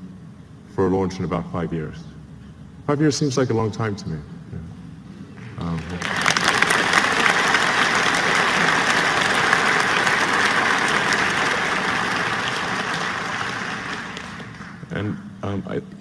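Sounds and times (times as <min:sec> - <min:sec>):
large audience applauding: 0:05.8 - 0:15.0.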